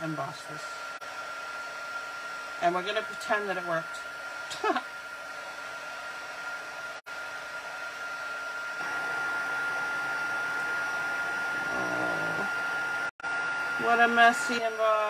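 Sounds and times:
heat embossing tool blowing: 8.8 - 13.0.

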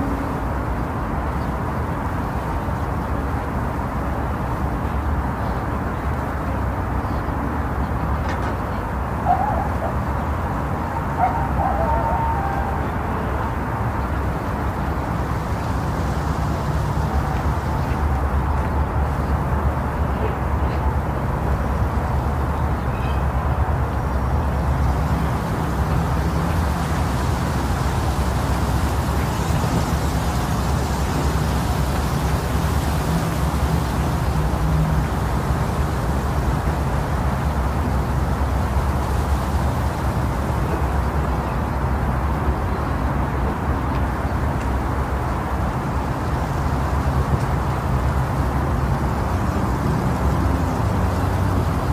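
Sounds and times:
wind blowing: 8.8 - 20.3.

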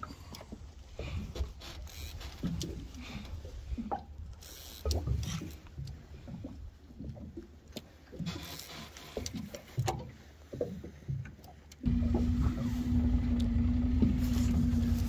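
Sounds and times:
water lapping against boat hull: 0.0 - 15.0
hissy water splashes: 11.8 - 15.0.

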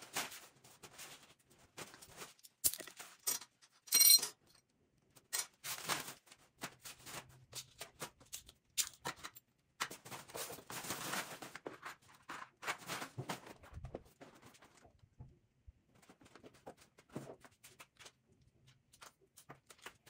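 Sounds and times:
plastic bag rustling: 10.0 - 14.9.

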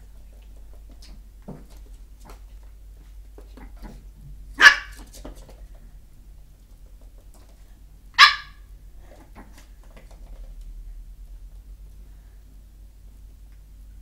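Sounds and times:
puppy barking: 4.6 - 5.1, 8.2 - 8.6.

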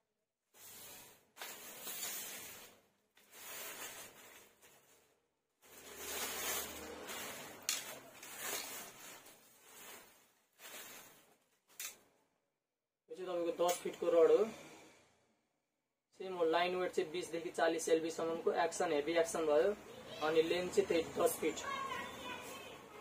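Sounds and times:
rustling handling of fishing rod: 0.6 - 12.1.

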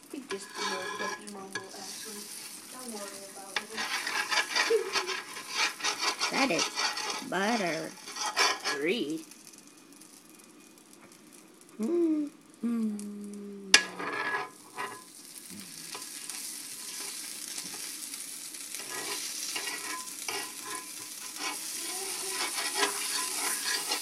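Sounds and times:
butter sizzling on a griddle: 0.0 - 12.6, 13.2 - 24.0
metal spoon scraping a plate: 0.3 - 2.1, 3.6 - 8.9, 13.8 - 15.1, 18.8 - 24.0.

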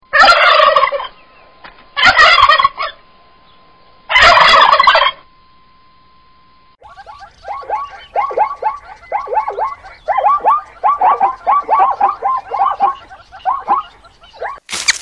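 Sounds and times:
zebra yelping barks: 6.8 - 14.6.

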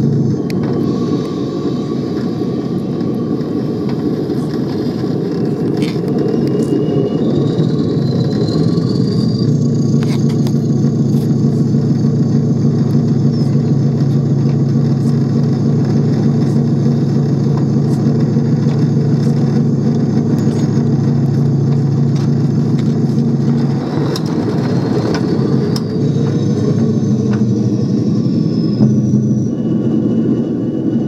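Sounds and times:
model locomotive motor drone: 0.0 - 31.0
wheels clicking over rail joints: 2.2 - 7.0, 9.6 - 27.9.

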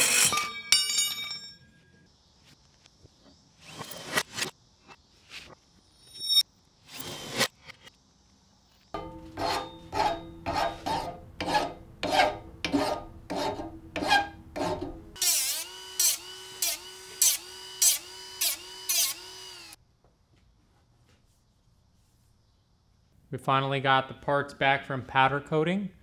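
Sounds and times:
file stroking steel rod: 9.0 - 15.0.

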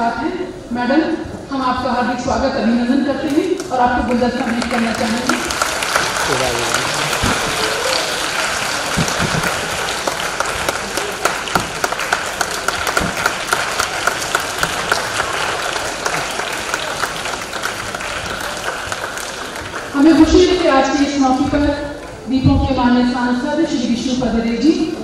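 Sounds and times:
crowd clapping: 3.6 - 20.7.

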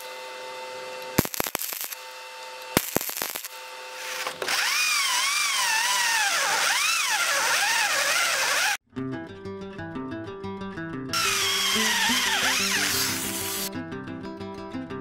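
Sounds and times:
welder arc crackling: 1.0 - 8.8, 11.2 - 13.7
power drill boring through steel: 3.9 - 8.8, 11.2 - 13.7.

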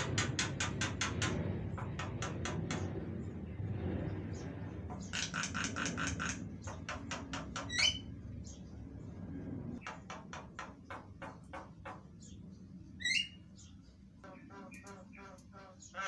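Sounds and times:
bird harsh clicking calls: 0.0 - 3.0, 4.9 - 8.1, 9.8 - 12.4, 14.2 - 16.0.

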